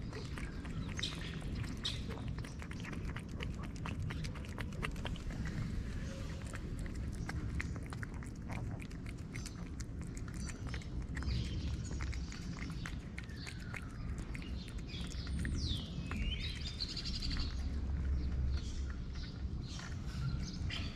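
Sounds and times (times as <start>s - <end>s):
birds chirping: 0.0s - 20.9s
cat chewing wet food: 0.0s - 20.9s
steady low rumble: 0.0s - 20.9s.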